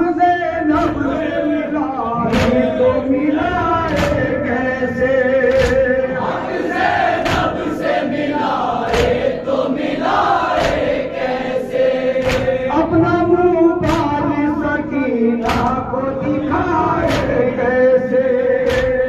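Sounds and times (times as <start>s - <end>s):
lead voice on microphone: 0.0s - 6.6s, 12.2s - 19.0s
men chanting in chorus: 0.0s - 19.0s
unison chest-beats: 0.7s - 1.4s, 2.2s - 19.0s.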